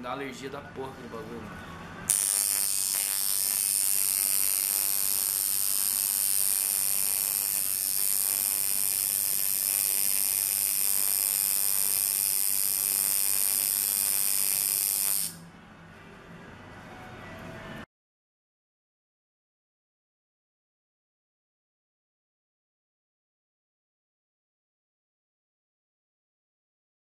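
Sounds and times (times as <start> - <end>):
tattoo machine buzzing: 2.1 - 15.4.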